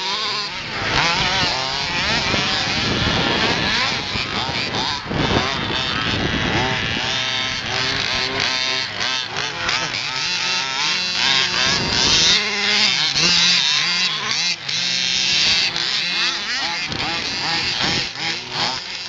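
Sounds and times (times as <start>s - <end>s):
small two-stroke engines revving: 0.0s - 19.0s.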